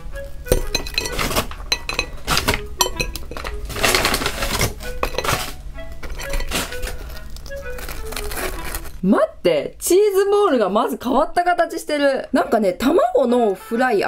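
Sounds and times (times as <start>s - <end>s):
snacks tapping on ceramic plate: 0.4s - 7.8s
paper bag rustling: 1.0s - 9.0s.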